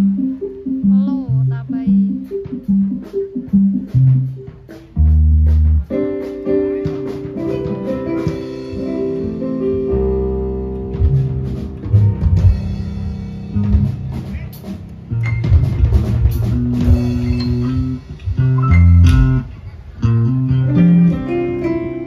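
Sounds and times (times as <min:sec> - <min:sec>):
deep bass notes: 0:00.0 - 0:22.0
electronic keyboard chords: 0:00.0 - 0:22.0
drum hits: 0:01.8 - 0:10.1, 0:10.8 - 0:19.5.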